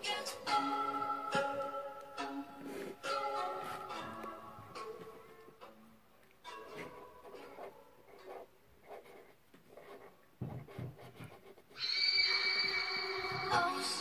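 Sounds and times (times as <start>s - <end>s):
music with held synth tone: 0.0s - 5.9s
marker scratching on paper: 6.7s - 11.8s.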